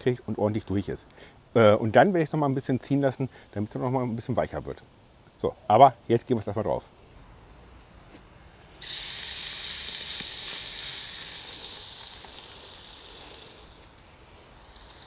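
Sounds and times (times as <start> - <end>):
meat sizzling on a grill: 8.5 - 15.0.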